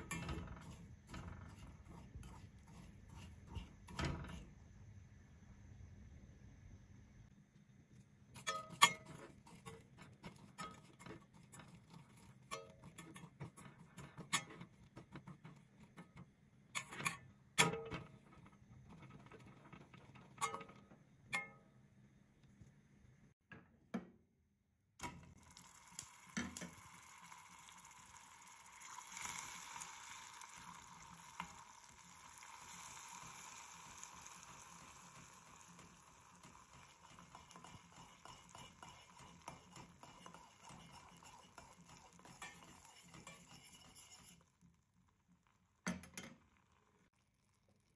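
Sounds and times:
utensil scraping saucepan: 0.0 - 4.6, 8.3 - 21.5, 28.4 - 44.7
caramel sizzling: 0.0 - 6.2, 8.0 - 17.0, 25.0 - 47.9.

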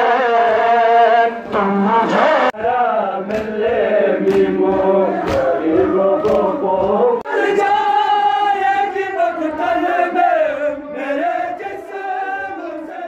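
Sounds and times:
men chanting a lament: 0.0 - 13.0.

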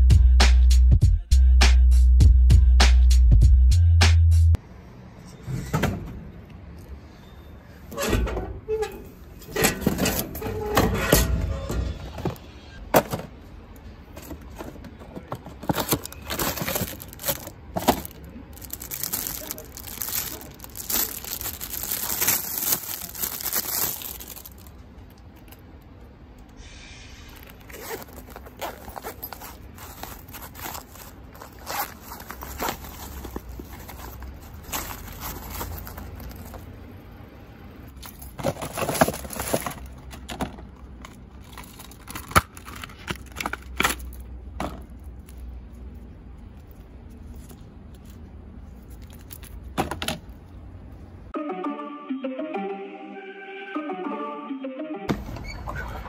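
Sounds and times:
plastic wrapping crinkling: 15.2 - 24.8, 27.3 - 36.7
plastic being torn: 15.6 - 24.8.

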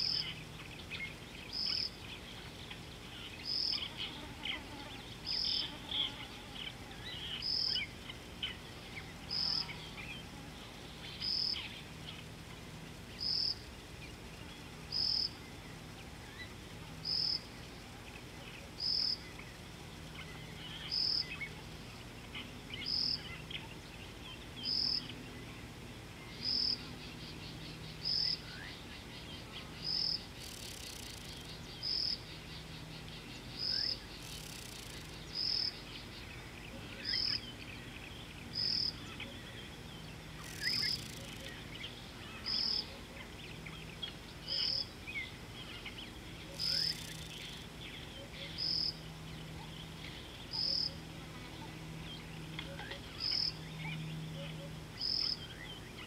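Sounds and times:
insect trilling: 0.0 - 18.0, 18.7 - 23.6, 26.3 - 37.6, 38.4 - 39.2, 40.3 - 43.7, 44.4 - 51.6, 52.6 - 55.5
bird chirps: 26.2 - 56.0.

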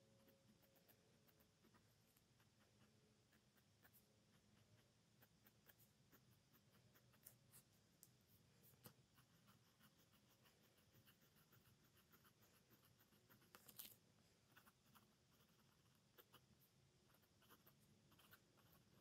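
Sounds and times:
pen nib scratching on paper: 0.0 - 19.0.

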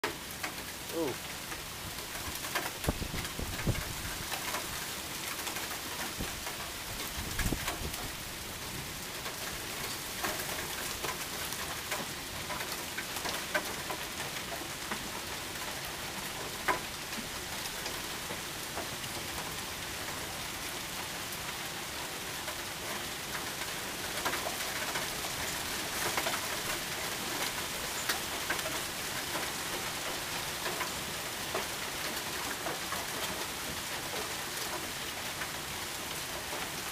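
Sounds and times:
heavy rain pouring: 0.0 - 36.9
hailstones clicking: 9.2 - 18.9.

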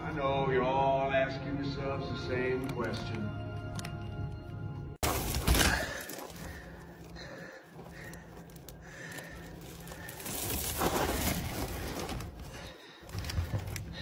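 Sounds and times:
plastic bag rustling: 5.0 - 14.0.

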